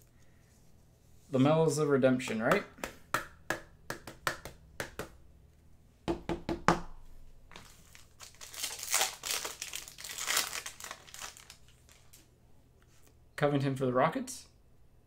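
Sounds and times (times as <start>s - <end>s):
foil card pack crinkling: 7.6s - 12.2s.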